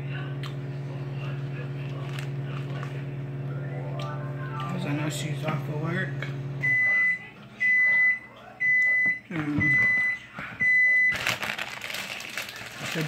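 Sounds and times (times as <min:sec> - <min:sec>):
plastic bag crinkling: 0:11.1 - 0:13.0.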